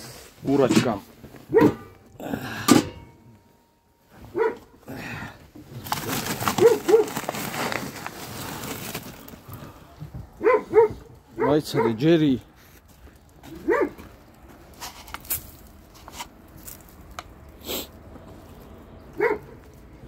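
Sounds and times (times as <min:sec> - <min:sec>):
dogs and hens calling: 0:04.2 - 0:04.8, 0:06.6 - 0:07.2, 0:10.4 - 0:12.1, 0:13.5 - 0:14.0, 0:19.1 - 0:19.6
rustling noise: 0:05.7 - 0:11.4, 0:12.4 - 0:18.9.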